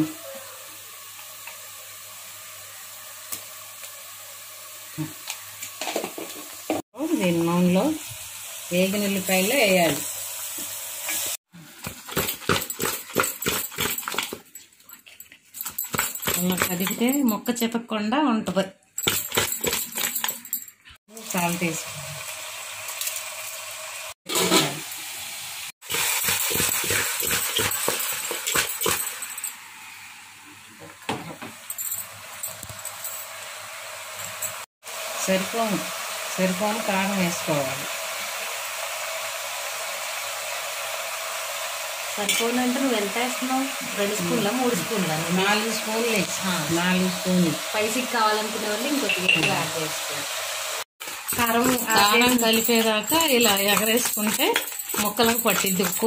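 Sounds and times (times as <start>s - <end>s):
onions sizzling in hot oil: 0.0s - 13.2s, 21.1s - 56.0s.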